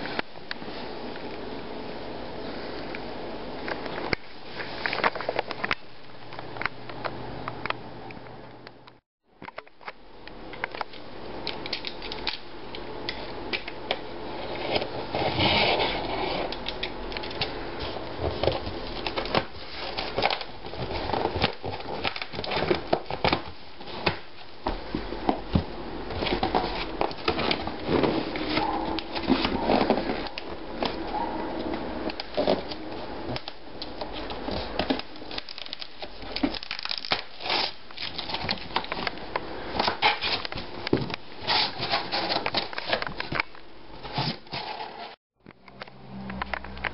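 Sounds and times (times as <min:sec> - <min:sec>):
cardboard box crackles and scrapes: 0:14.4 - 0:16.5, 0:41.4 - 0:43.0.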